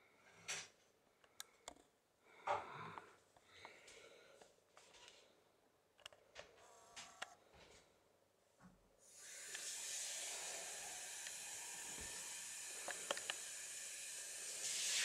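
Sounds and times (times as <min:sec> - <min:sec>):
steady hiss: 0:09.0 - 0:15.0.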